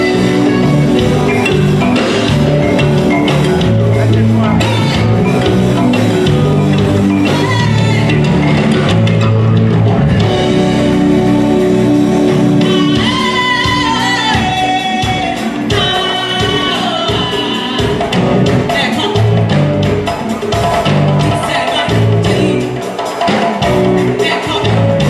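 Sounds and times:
pop music with bass line: 0:00.0 - 0:25.0
woman singing: 0:04.3 - 0:08.6, 0:12.5 - 0:25.0.

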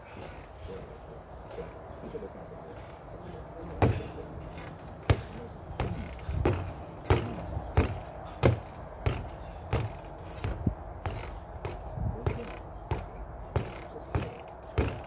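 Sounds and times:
spring stem rattling: 0:02.7 - 0:15.0
gloved punches on reflex bag: 0:05.1 - 0:15.0.

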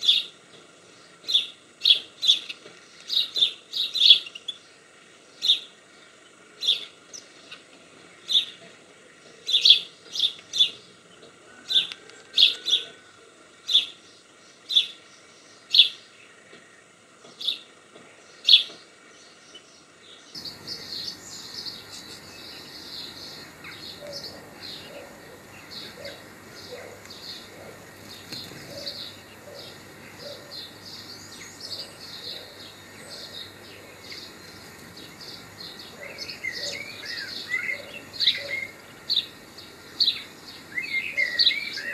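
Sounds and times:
background noise: 0:00.0 - 0:41.9
bird twittering: 0:20.4 - 0:39.4.

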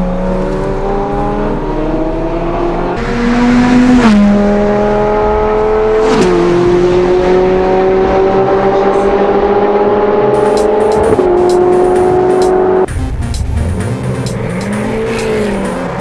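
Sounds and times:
car engine at full throttle: 0:00.0 - 0:16.0.

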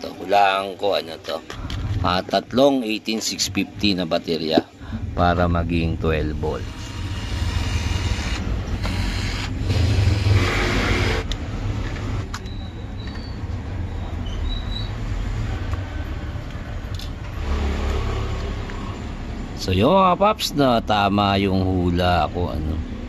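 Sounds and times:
steady low hum: 0:00.0 - 0:12.3
electric screwdriver whirring: 0:06.9 - 0:11.4.

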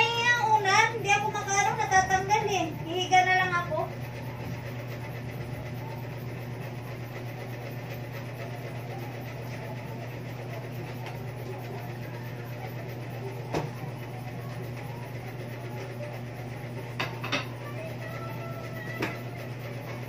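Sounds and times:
low mechanical hum: 0:00.0 - 0:20.0.

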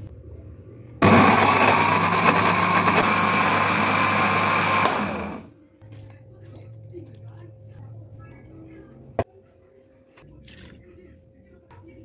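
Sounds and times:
blender motor grinding: 0:01.0 - 0:05.5.

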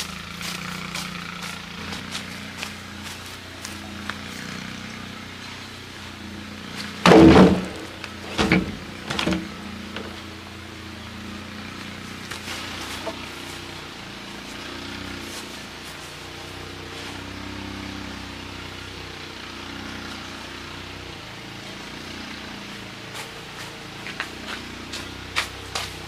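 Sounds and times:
heavy log thudding on logs: 0:06.8 - 0:10.4.

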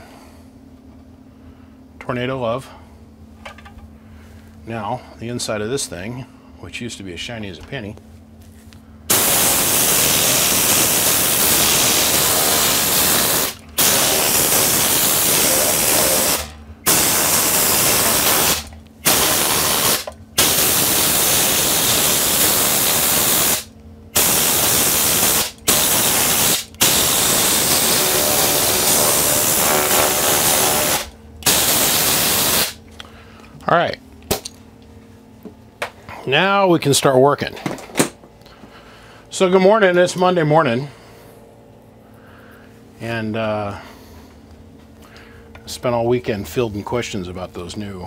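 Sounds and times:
compressed air gun hissing: 0:09.1 - 0:32.8.

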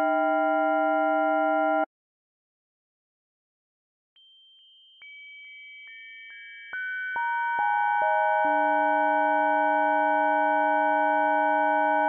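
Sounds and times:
synthesized bell chord tones: 0:04.2 - 0:12.0.

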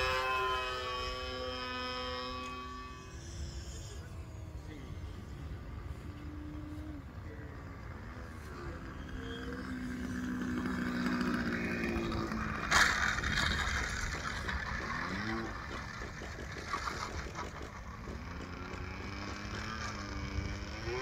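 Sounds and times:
model plane engine running: 0:00.0 - 0:21.0.

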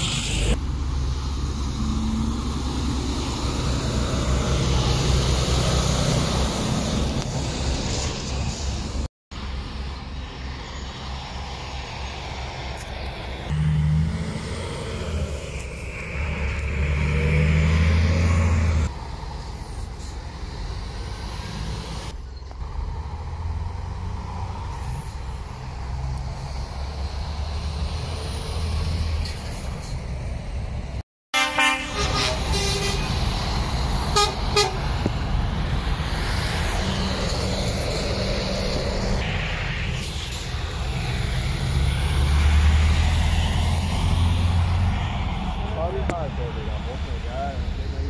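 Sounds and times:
lorries driving past: 0:00.0 - 0:48.0
truck horn toots: 0:31.3 - 0:33.2, 0:34.0 - 0:34.9.

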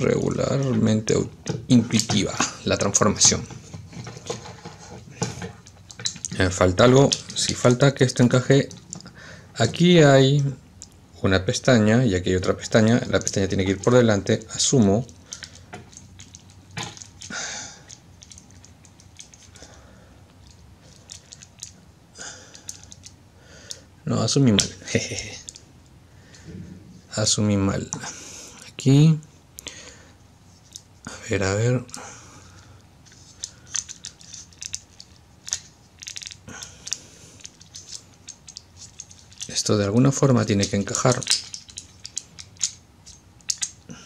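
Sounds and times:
plastic toy parts clicking: 0:33.2 - 0:39.6, 0:40.6 - 0:43.8.

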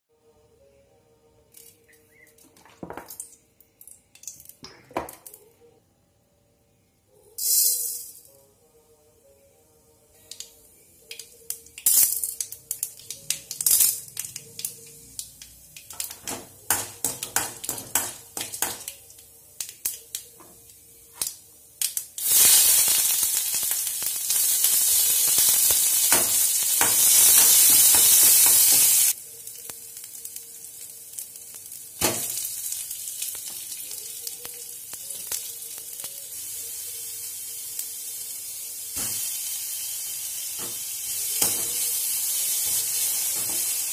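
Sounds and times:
onions sizzling: 0:10.1 - 0:43.9
mustard seeds popping in oil: 0:10.2 - 0:36.4
oil frying sizzle: 0:10.3 - 0:43.9.

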